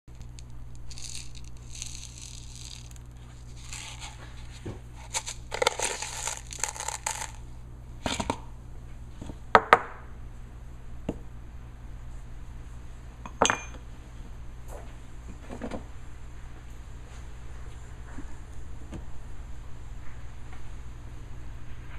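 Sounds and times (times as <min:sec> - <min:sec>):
steady low hum: 0:00.0 - 0:21.9
rustling handling noise: 0:00.1 - 0:07.4.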